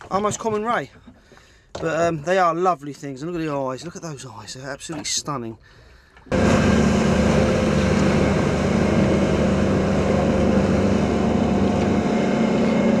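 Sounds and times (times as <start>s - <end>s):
motorboat engine drone: 6.3s - 13.0s.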